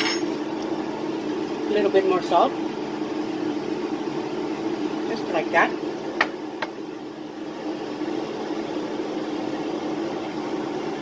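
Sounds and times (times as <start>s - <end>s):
steady low hum: 0.0s - 11.0s
meat simmering in a skillet: 0.4s - 5.1s.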